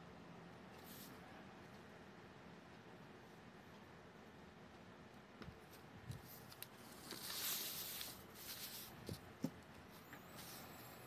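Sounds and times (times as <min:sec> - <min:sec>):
paper sliding across table: 0:06.9 - 0:09.0.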